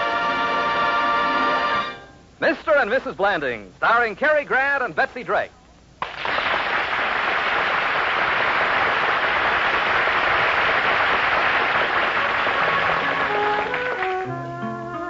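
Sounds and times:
studio audience applause: 6.0s - 14.4s.

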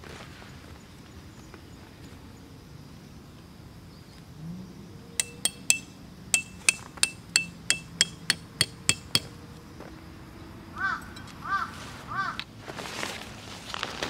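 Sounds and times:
tent peg hammered into ground: 5.2s - 9.4s
bird calling: 10.8s - 12.4s.

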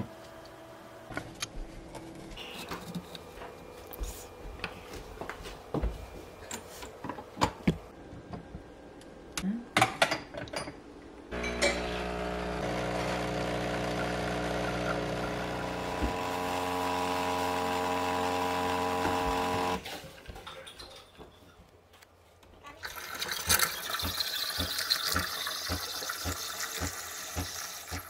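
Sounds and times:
espresso machine pump humming: 11.4s - 19.8s, 23.2s - 28.0s.

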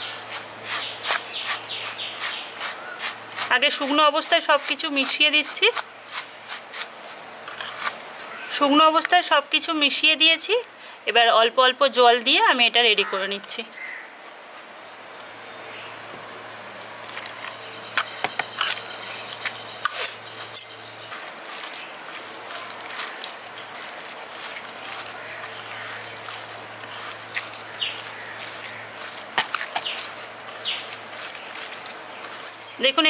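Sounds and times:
hands squeezing grainy mixture: 0.0s - 7.2s, 21.0s - 32.7s
faint steady hum: 0.0s - 33.0s.

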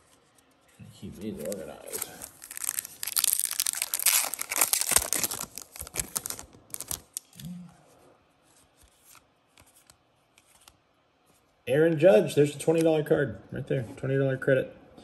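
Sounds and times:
foil wrapper tearing and crinkling: 1.3s - 7.2s.

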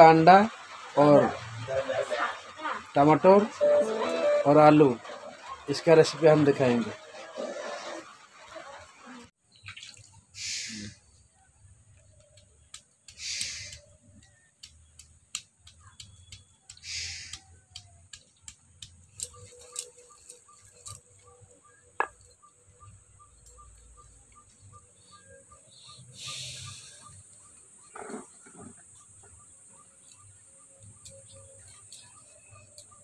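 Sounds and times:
stone tapping garlic: 12.2s - 19.3s.

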